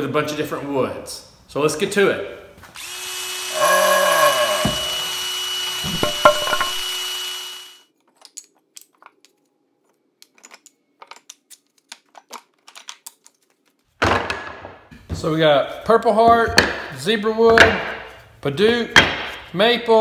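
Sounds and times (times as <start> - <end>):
power drill whirring: 2.8 - 7.8
wooden offcuts knocking together: 5.8 - 6.8.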